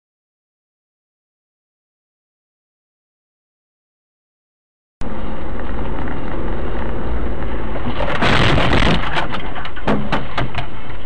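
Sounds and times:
vehicle road and engine noise: 5.0s - 11.0s.

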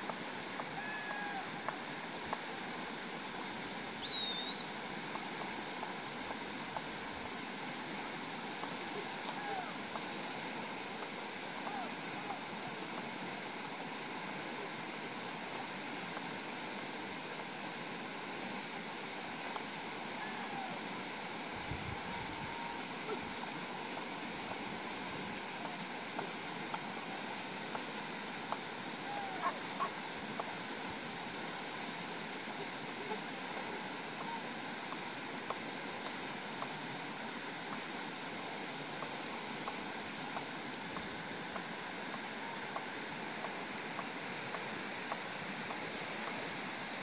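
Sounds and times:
faint clicks: 8.6s - 10.1s, 33.0s - 36.8s, 39.0s - 46.5s.

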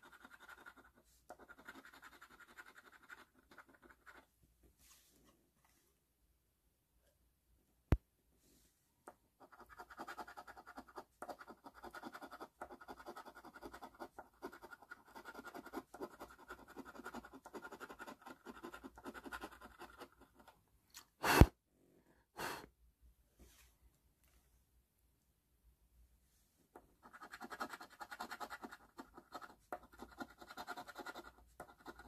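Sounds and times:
scratching lottery ticket: 0.0s - 4.3s, 27.0s - 32.0s.

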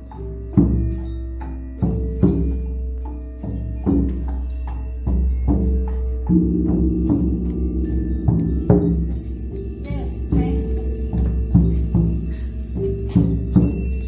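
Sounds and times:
hand percussion ringing notes: 0.0s - 14.0s
high rattling: 0.0s - 14.0s.

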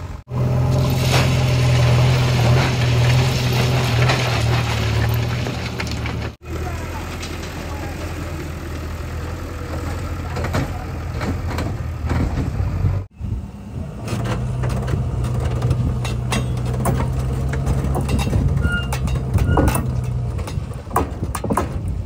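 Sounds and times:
diesel engine running under rail vehicle: 0.0s - 22.0s
diesel engine idling: 6.3s - 20.9s
short high squeaks: 18.6s - 19.9s.

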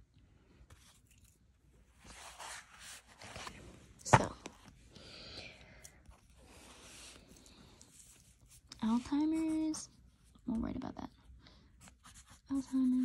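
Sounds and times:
paper rustling: 2.0s - 4.2s.

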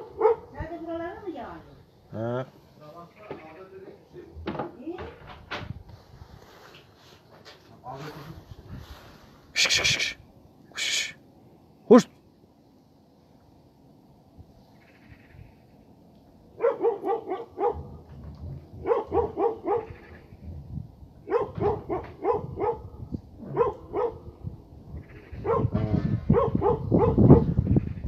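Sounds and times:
dogs barking: 0.0s - 0.6s, 16.5s - 18.1s, 18.7s - 20.1s, 21.2s - 24.5s, 25.2s - 27.6s.

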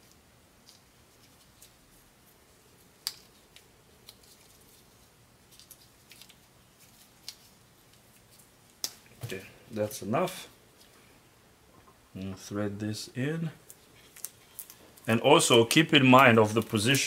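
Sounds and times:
tape crinkling and clicking: 0.0s - 9.4s, 13.6s - 17.0s.

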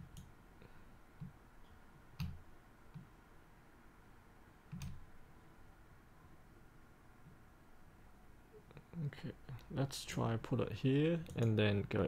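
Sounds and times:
faint room noise: 0.0s - 12.0s
computer mouse clicking: 4.7s - 5.0s.

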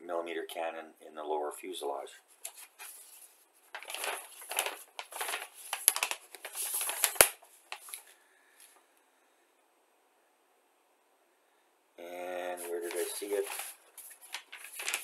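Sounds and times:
paper rustling and crinkling: 2.3s - 8.1s, 12.5s - 15.0s.

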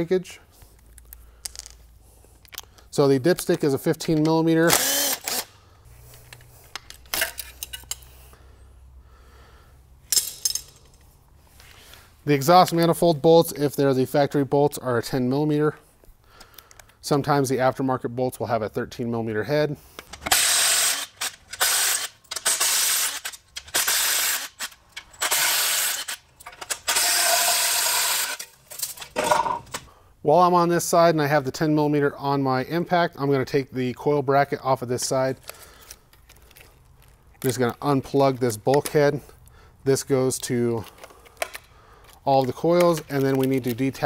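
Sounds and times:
impact driver burst: 4.7s - 5.6s, 20.2s - 28.6s.

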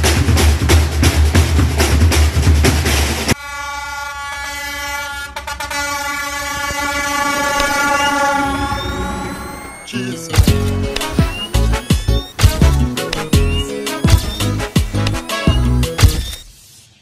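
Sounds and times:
drum-heavy music: 0.0s - 3.4s, 9.9s - 16.5s
diesel locomotive horn: 3.4s - 10.0s.

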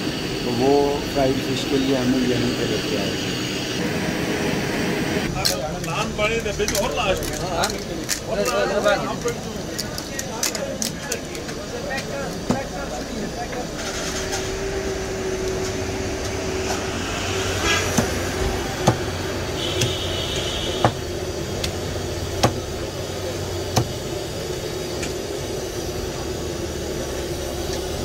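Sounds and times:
steady background hum: 0.0s - 28.0s
cleaver chopping on wooden block: 22.4s - 22.6s.

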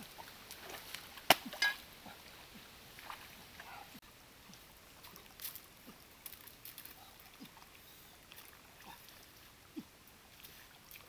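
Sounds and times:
stream trickling and gurgling: 0.0s - 11.0s.

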